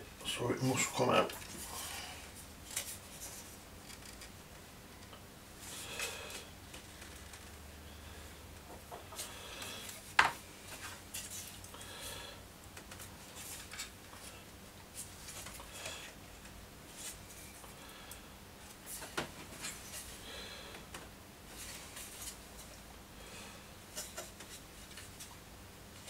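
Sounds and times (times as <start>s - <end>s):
short creaks: 3.8s - 4.3s, 6.8s - 7.6s.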